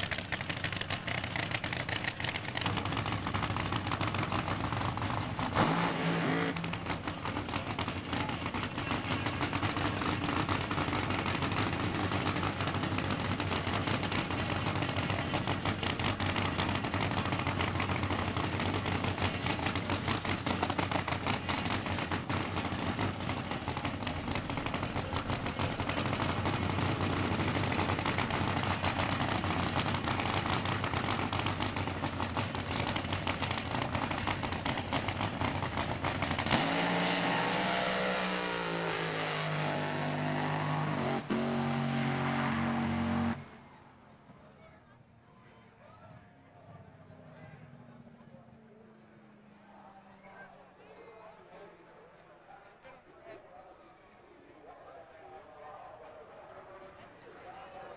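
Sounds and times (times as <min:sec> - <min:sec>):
drag car engine idling crackle: 0:00.0 - 0:05.6, 0:06.6 - 0:36.6.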